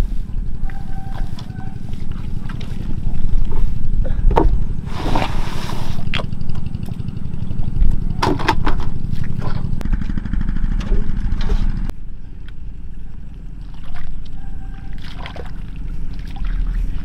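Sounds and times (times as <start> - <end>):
small engine running: 5.8 - 11.9.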